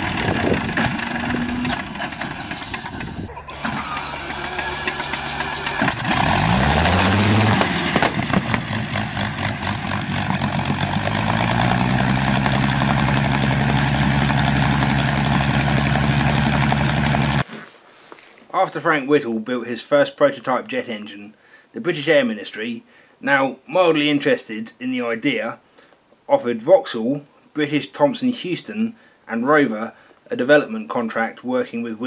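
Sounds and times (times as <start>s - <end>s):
engine starting and revving: 0.0s - 17.4s.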